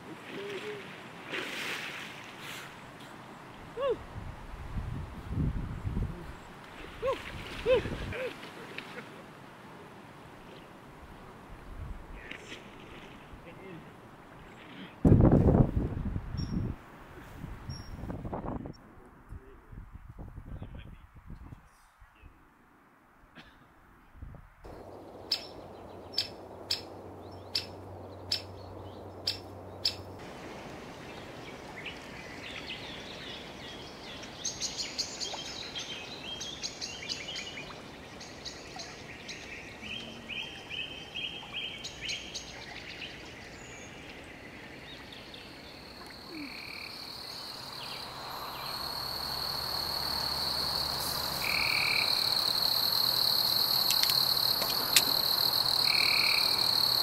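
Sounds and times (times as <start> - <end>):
high chirping calls: 25.2 - 28.6.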